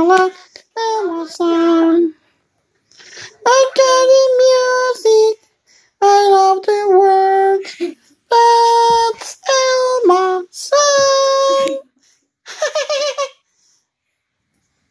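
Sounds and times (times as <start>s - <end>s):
child singing high notes: 3.2s - 5.4s, 6.0s - 11.9s.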